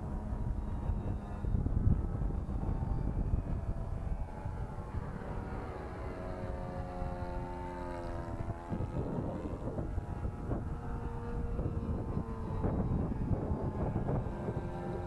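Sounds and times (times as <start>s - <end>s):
model airplane engine droning: 0.0s - 15.0s
wind rumble on microphone: 0.0s - 15.0s.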